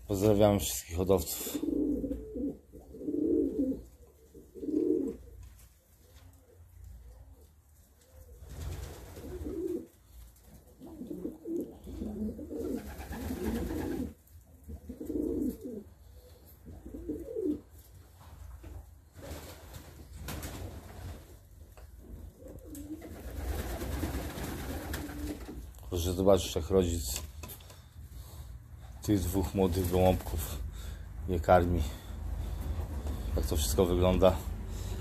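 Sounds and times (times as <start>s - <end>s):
pigeons cooing: 1.4s - 17.8s, 21.8s - 25.7s
rustling noise: 29.1s - 30.6s.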